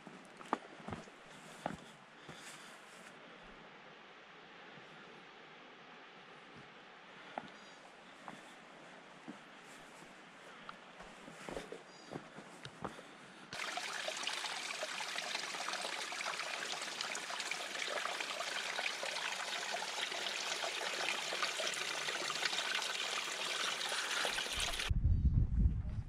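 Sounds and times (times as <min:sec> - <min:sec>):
mountain stream rushing: 0:13.6 - 0:24.9
loud low rumble: 0:24.9 - 0:26.0.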